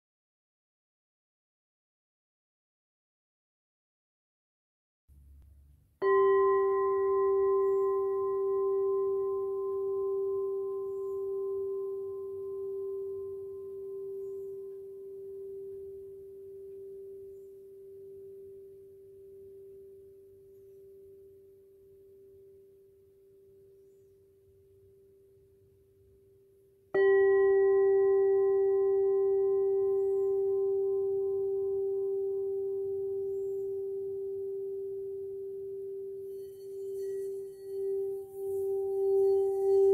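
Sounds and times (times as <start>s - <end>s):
crystal singing cup ringing: 6.0s - 22.9s, 27.0s - 39.9s.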